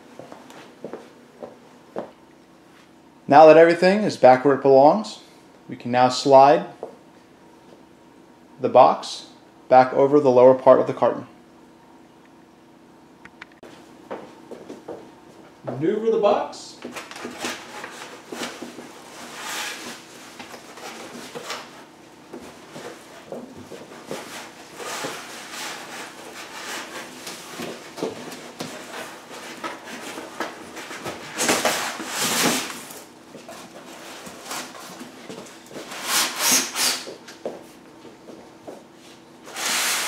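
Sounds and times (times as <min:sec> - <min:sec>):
cardboard rubbing and scraping: 0:17.2 - 0:21.8, 0:22.7 - 0:32.9.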